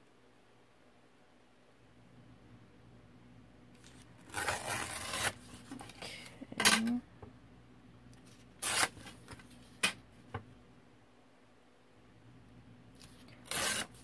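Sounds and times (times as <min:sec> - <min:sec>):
paper tearing: 0:03.8 - 0:05.7, 0:08.3 - 0:09.5, 0:13.0 - 0:14.0.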